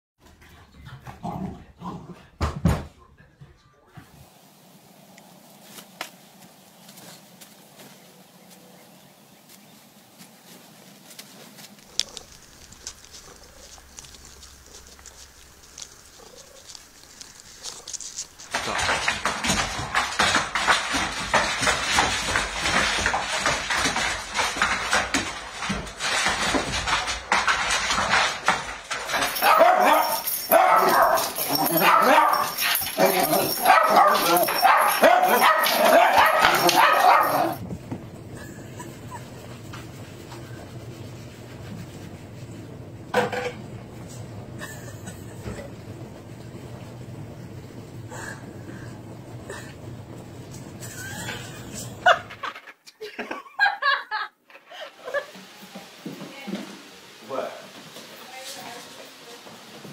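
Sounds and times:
dog claws scrabbling on wooden floor: 11.2s - 37.6s.

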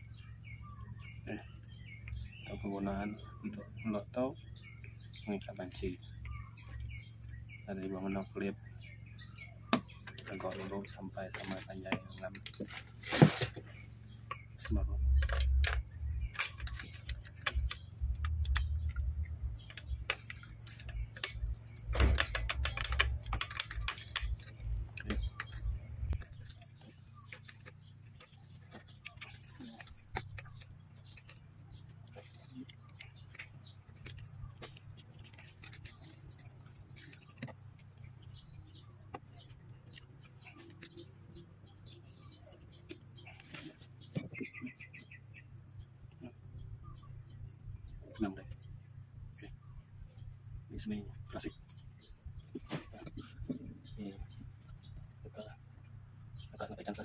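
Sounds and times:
low steady hum: 0.0s - 57.0s
rubber bands clicking and rubbing: 14.6s - 38.0s.

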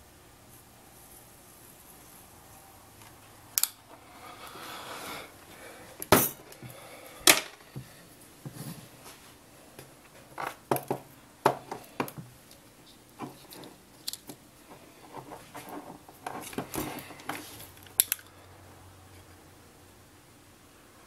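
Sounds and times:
hands handling wires: 5.4s - 18.4s.

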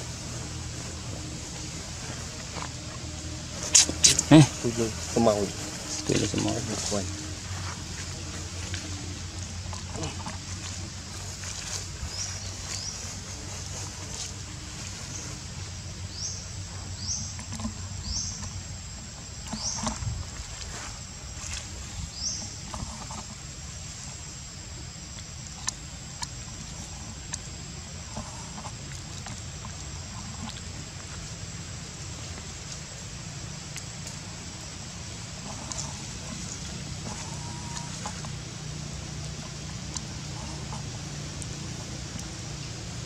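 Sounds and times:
thin high whine: 0.0s - 16.0s
faint calls: 0.0s - 24.2s, 25.4s - 43.0s
steady low rumble: 0.0s - 43.0s.

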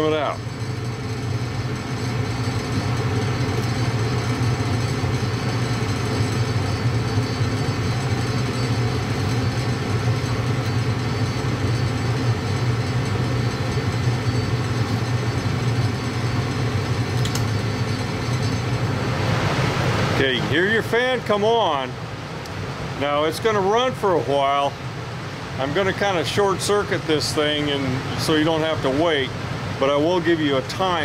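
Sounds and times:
furnace burner hum and rush: 0.0s - 31.0s.

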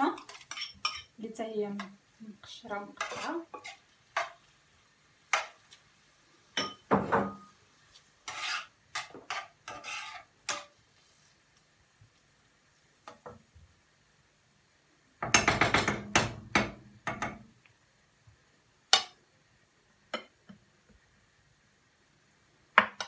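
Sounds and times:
metal spoon knocking on frying pan: 15.2s - 17.4s.

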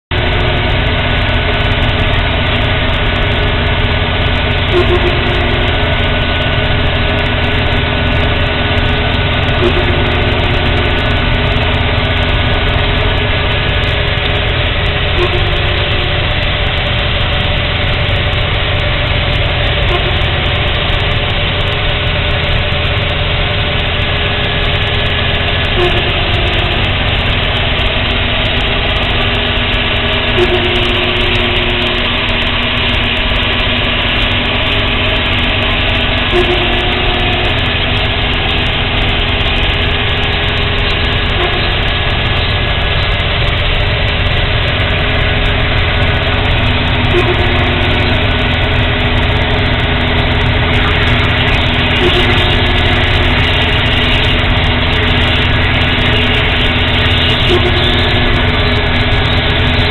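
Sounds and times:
tractor and harvester drone: 0.0s - 59.9s
short higher tone: 4.6s - 6.3s, 9.5s - 11.6s, 15.1s - 16.3s, 30.3s - 32.4s.

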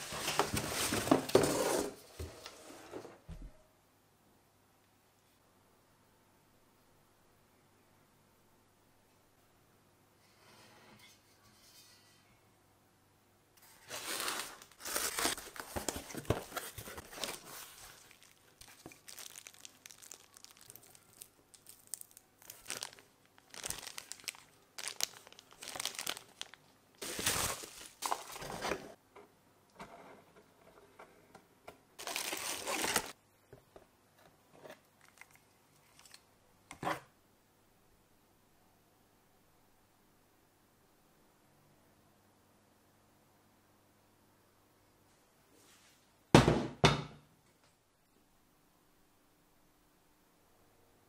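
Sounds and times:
plastic bags crinkling: 13.9s - 28.9s, 32.0s - 33.2s.

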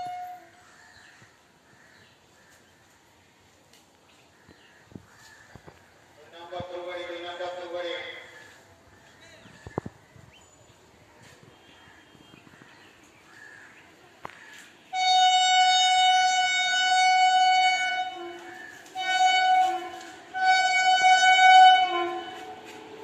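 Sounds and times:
electric locomotive horn blasts: 0.0s - 0.7s, 14.9s - 23.0s.

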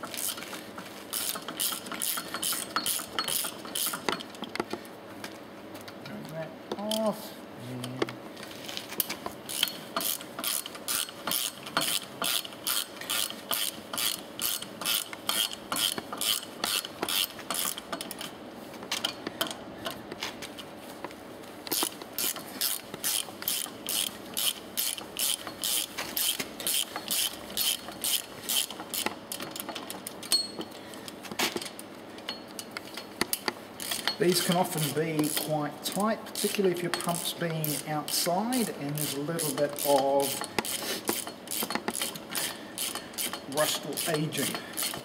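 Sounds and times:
ratchet wrench clicking: 1.1s - 4.3s, 9.5s - 18.3s, 21.7s - 30.5s, 32.2s - 45.0s.

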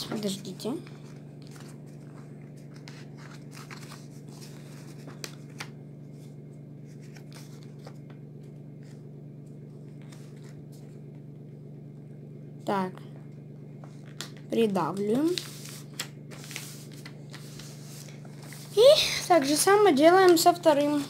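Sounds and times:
paper rustling and crinkling: 0.0s - 11.2s, 13.8s - 21.0s
low hum: 0.0s - 20.8s.

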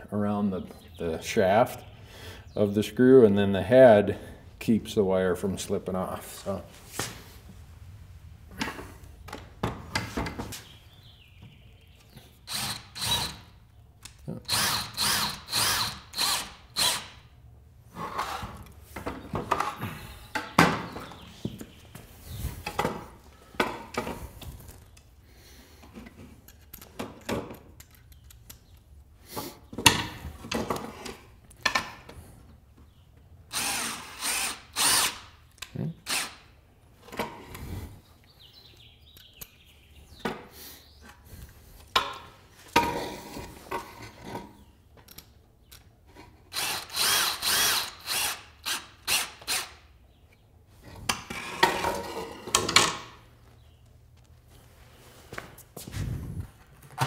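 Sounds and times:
cordless drill drilling into bone: 12.5s - 13.4s, 14.5s - 17.1s, 33.5s - 35.3s, 36.0s - 36.4s, 46.5s - 49.8s.

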